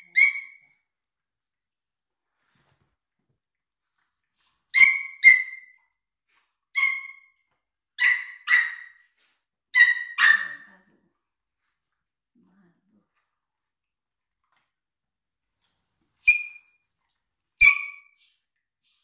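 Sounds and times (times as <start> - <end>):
dog yipping: 0.0 - 0.7, 4.7 - 5.8, 6.8 - 7.3, 8.0 - 9.0, 9.8 - 10.7, 17.6 - 19.0.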